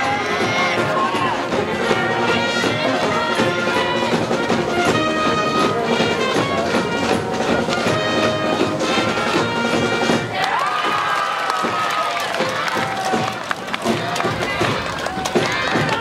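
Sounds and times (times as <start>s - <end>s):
brass band playing: 0.0s - 10.4s.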